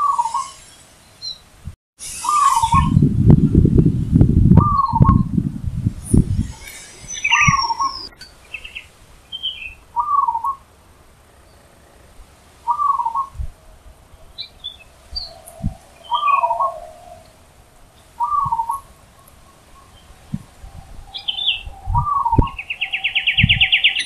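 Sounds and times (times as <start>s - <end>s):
small birds chirping: 0.0s - 4.0s, 4.6s - 24.0s
dove cooing: 10.0s - 10.6s, 11.8s - 13.4s, 14.2s - 24.0s.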